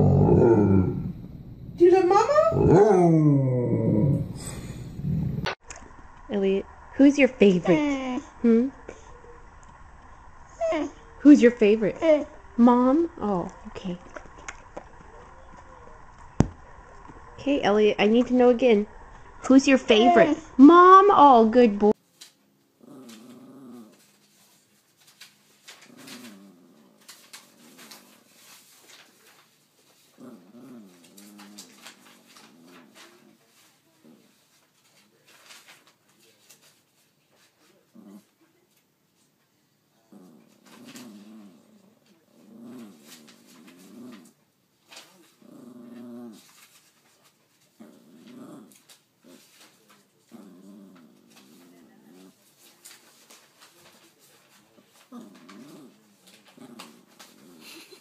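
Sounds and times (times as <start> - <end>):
dog whining: 0.0 - 5.5, 10.5 - 11.2
small dog vocalizing: 10.5 - 11.1.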